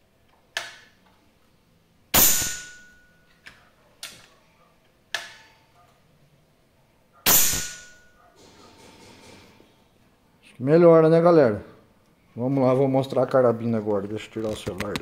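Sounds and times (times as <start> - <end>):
air rifle shot crack: 2.2 - 2.9, 7.2 - 8.0.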